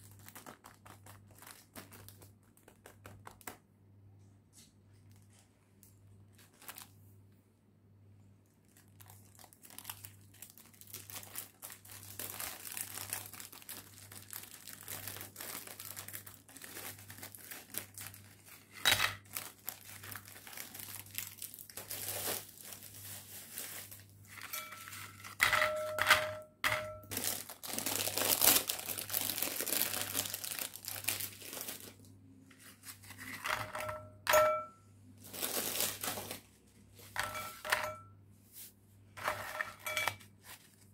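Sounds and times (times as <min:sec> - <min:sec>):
plastic wrapper crinkling and tearing: 0:00.0 - 0:03.6, 0:06.3 - 0:07.1, 0:08.4 - 0:25.4, 0:27.0 - 0:33.4, 0:35.2 - 0:36.6
bowl ringing: 0:24.4 - 0:27.1, 0:33.8 - 0:34.9.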